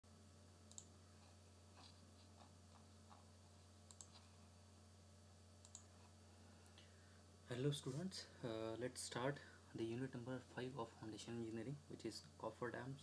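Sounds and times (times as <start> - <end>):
low steady hum: 0.0 - 13.0
computer mouse clicks: 0.7 - 0.9, 3.8 - 4.2, 5.6 - 5.9.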